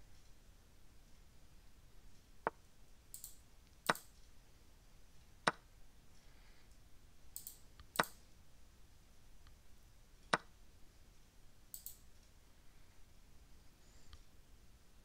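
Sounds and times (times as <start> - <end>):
sharp single clicks: 2.4 - 4.2, 7.4 - 8.2, 11.7 - 12.0.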